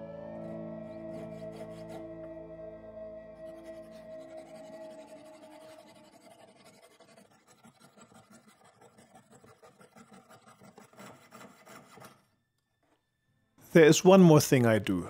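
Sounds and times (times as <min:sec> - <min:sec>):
saw blade rasping through metal: 0:01.1 - 0:02.1, 0:03.5 - 0:12.3.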